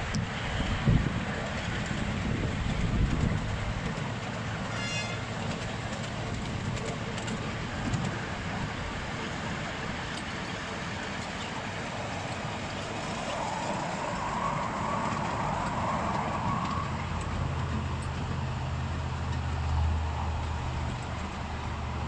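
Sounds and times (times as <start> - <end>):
train wheels rumbling on rails: 0.0 - 22.0
quick run of ticks: 2.7 - 8.2.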